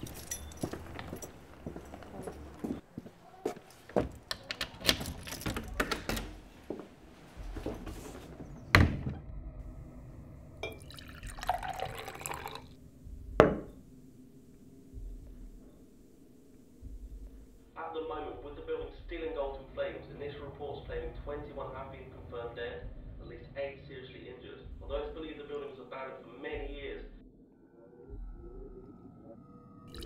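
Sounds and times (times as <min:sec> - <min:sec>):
footsteps: 0:00.0 - 0:04.3, 0:05.7 - 0:08.7
door shutting with thud: 0:08.6 - 0:09.3
liquid pouring: 0:10.6 - 0:12.8
knock on tabletop: 0:13.4 - 0:13.8.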